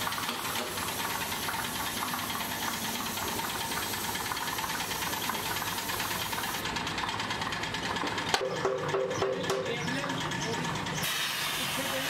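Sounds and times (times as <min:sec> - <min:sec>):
spray gun hissing: 0:00.0 - 0:06.6, 0:11.0 - 0:12.0
air compressor knocking: 0:00.0 - 0:10.7.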